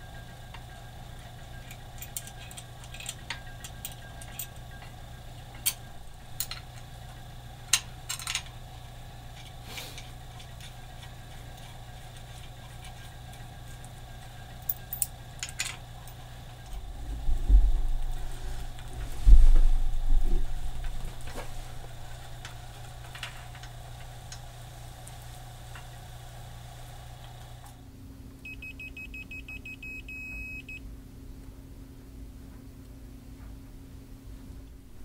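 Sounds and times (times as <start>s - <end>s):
steady low hum: 0.0s - 35.0s
metallic clicks and clinks: 1.7s - 4.9s, 14.6s - 16.2s
low rumble: 16.8s - 22.1s.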